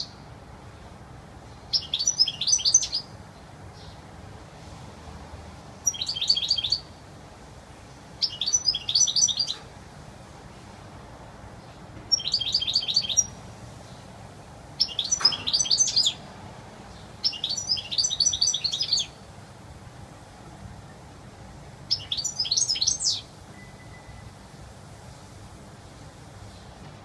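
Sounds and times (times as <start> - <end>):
goldfinch singing: 1.7 - 3.1, 5.8 - 6.9, 8.2 - 9.7, 12.1 - 13.4, 14.8 - 16.2, 16.9 - 19.2, 21.9 - 24.3.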